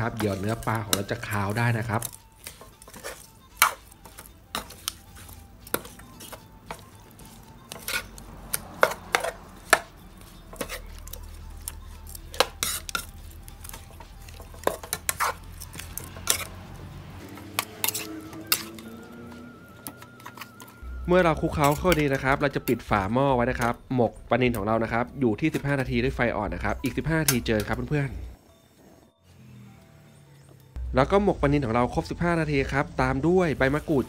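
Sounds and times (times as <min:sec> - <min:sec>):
plastic spatula scraping a pan: 0:00.0 - 0:16.6.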